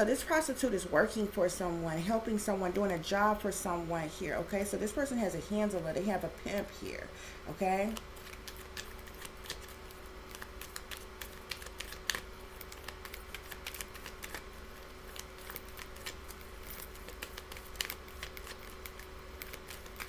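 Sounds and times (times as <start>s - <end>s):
faint steady hum: 0.0s - 20.0s
cards being shuffled: 7.9s - 20.0s.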